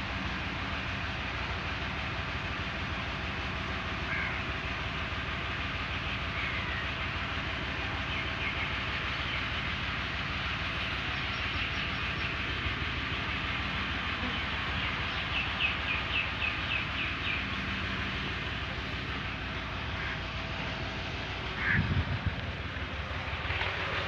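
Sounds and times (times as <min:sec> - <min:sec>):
rotary implement drive shaft spinning: 0:00.0 - 0:24.0
tractor running: 0:00.0 - 0:24.0.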